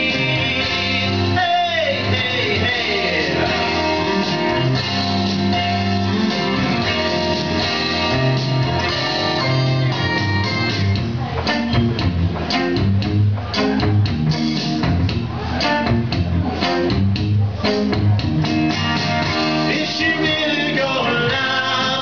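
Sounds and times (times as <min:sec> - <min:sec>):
bass line: 0:00.0 - 0:22.0
guitar strumming: 0:00.0 - 0:22.0.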